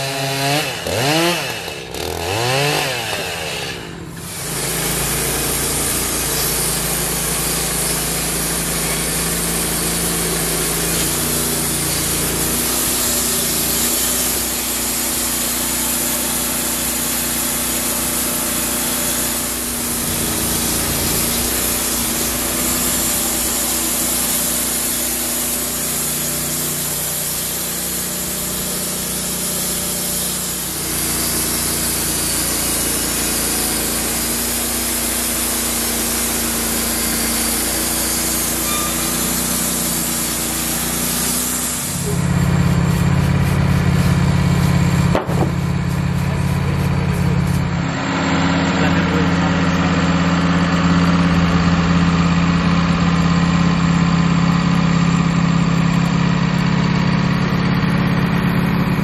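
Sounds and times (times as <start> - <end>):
gas engine running under load: 0.0 - 59.0
band saw blade hissing in wood: 2.8 - 47.8.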